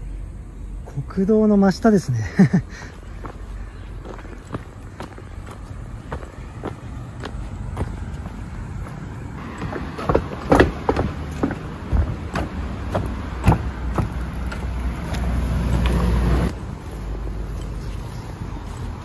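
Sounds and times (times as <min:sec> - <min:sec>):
highway traffic: 0:00.0 - 0:19.0
vehicle rumbling past: 0:02.9 - 0:19.0
sharp knocks and clicks: 0:09.6 - 0:16.0.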